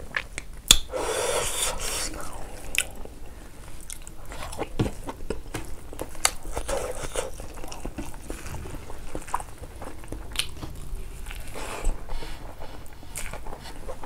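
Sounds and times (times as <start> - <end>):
wet chewing: 0.0 - 14.0
lip smacks: 0.1 - 3.1.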